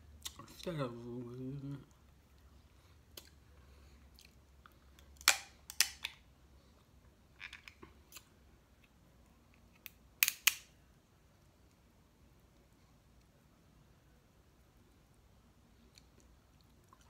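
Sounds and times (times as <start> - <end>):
crab shell cracking: 5.2 - 6.2.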